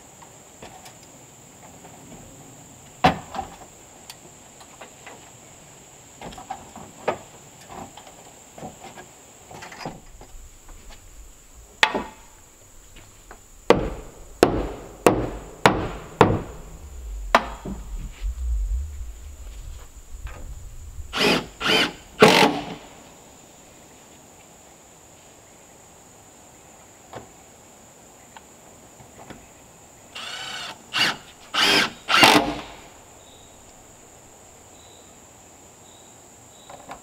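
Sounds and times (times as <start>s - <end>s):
hammer striking wooden boards: 13.7s - 16.6s.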